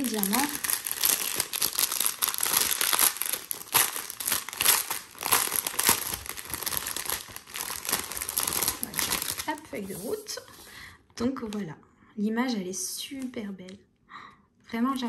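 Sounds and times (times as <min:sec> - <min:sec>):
plastic packaging crinkling: 0:00.0 - 0:10.5.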